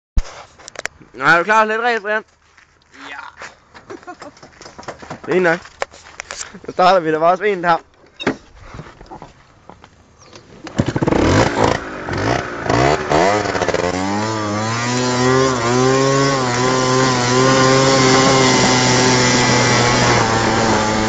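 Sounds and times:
small petrol engine revving: 0:10.6 - 0:21.0.

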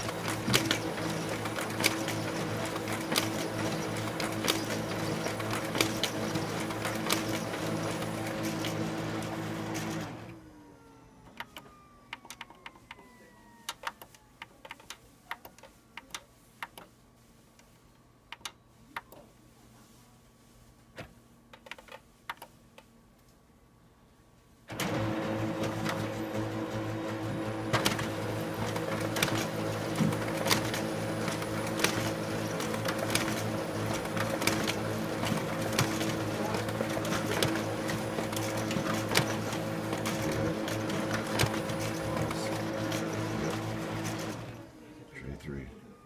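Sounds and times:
printer winding down whine: 0:00.0 - 0:14.4, 0:24.7 - 0:46.0
printer motors humming and clicking: 0:00.0 - 0:16.9, 0:24.7 - 0:46.0.

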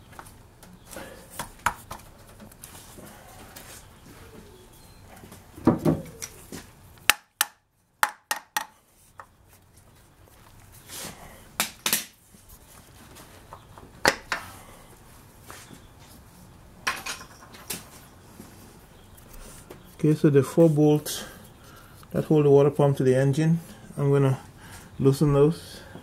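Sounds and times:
metal clinks and knocks: 0:16.8 - 0:18.0.

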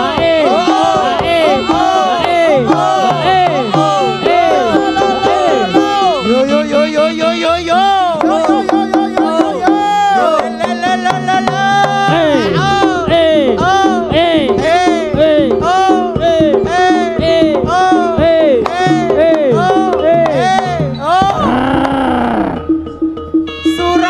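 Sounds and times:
sliding melody: 0:00.0 - 0:14.1.

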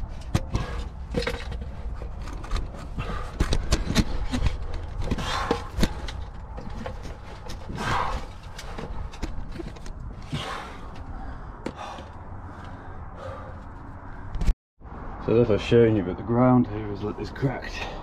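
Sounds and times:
gear scraping against rock: 0:00.0 - 0:10.7
heavy panting breaths: 0:02.8 - 0:06.2, 0:07.4 - 0:09.2, 0:10.1 - 0:14.4.

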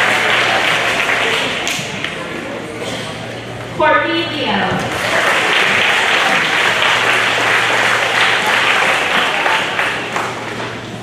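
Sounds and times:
audience applauding: 0:00.0 - 0:02.2, 0:04.9 - 0:11.0.

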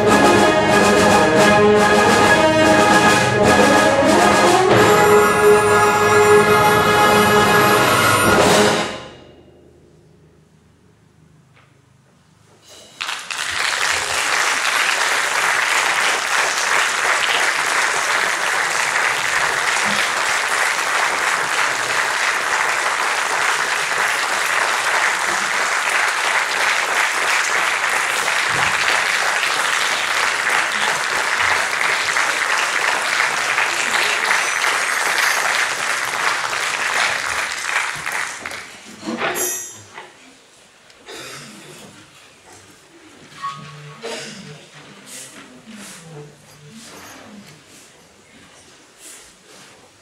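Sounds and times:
audience applauding: 0:13.0 - 0:38.9.

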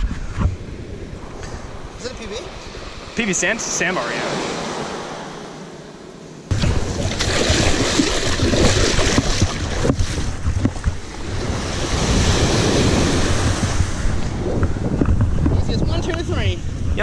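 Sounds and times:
wind buffeting microphone: 0:00.0 - 0:03.3, 0:06.5 - 0:17.0
small waves breaking on sand: 0:01.6 - 0:05.9, 0:06.7 - 0:14.4.

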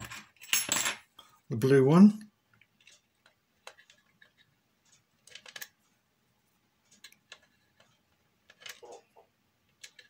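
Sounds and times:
small hard parts clicking: 0:02.6 - 0:05.8, 0:06.9 - 0:10.0.

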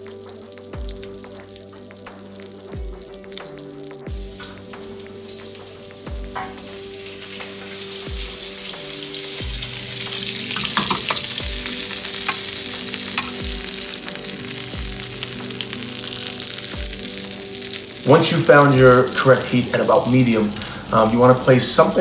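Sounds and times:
duck skin sizzling and crackling: 0:00.0 - 0:22.0.

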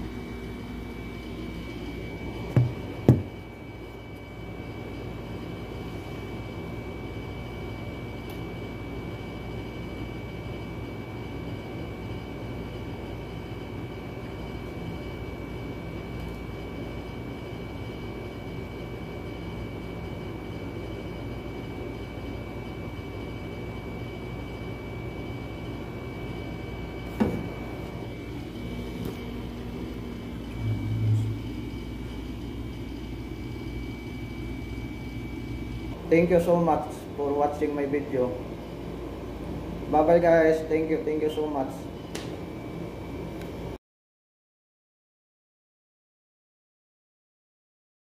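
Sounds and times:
phone handling thumps: 0:02.5 - 0:03.4
sharp knock: 0:02.6 - 0:03.3
low room hum: 0:24.2 - 0:43.6
thin high whine: 0:27.0 - 0:38.2.

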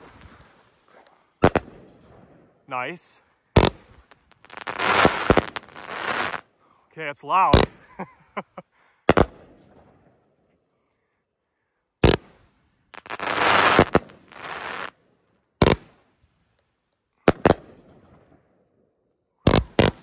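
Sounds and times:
firework crackling: 0:00.0 - 0:02.1, 0:02.8 - 0:06.5, 0:07.5 - 0:08.5, 0:09.1 - 0:09.6, 0:12.0 - 0:15.0, 0:15.6 - 0:16.1, 0:19.5 - 0:20.0
firework bangs: 0:00.0 - 0:02.5, 0:03.6 - 0:06.5, 0:07.5 - 0:07.9, 0:09.1 - 0:10.1, 0:12.0 - 0:12.4, 0:13.0 - 0:15.0, 0:17.3 - 0:18.2, 0:19.5 - 0:20.0.

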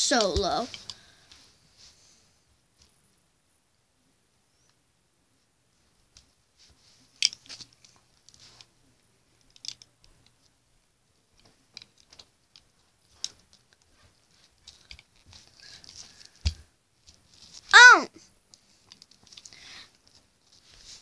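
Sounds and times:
plastic dolls clicking and tapping: 0:09.4 - 0:10.6, 0:11.4 - 0:13.9, 0:18.5 - 0:20.2
rustling of plastic and hands: 0:11.3 - 0:17.7, 0:18.4 - 0:21.0.

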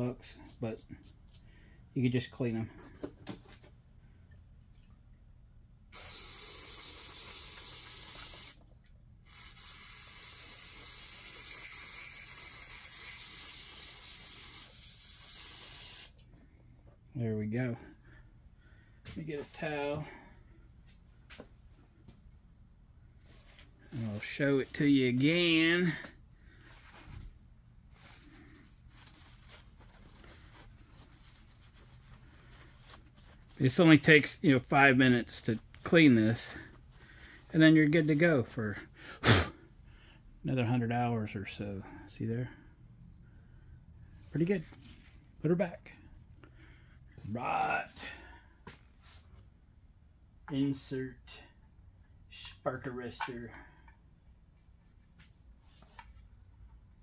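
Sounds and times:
aerosol spray hissing: 0:06.0 - 0:08.6, 0:09.3 - 0:16.2
paper towel rustling: 0:25.9 - 0:37.0.

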